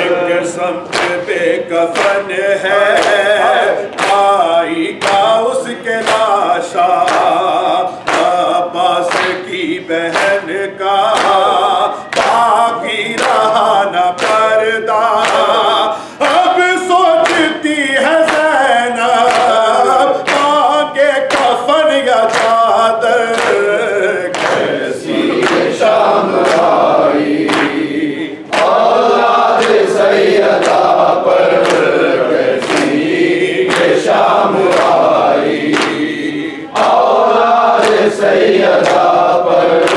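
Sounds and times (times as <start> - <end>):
men singing unaccompanied: 0.0 - 39.9.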